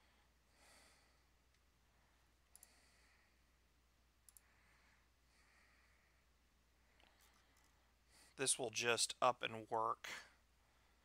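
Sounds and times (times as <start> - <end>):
computer mouse clicks: 2.5 - 2.8, 4.2 - 4.5.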